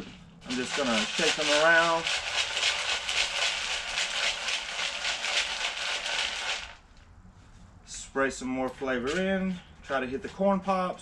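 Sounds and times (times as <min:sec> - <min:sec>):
cereal rattling in a bowl: 0:00.0 - 0:06.8.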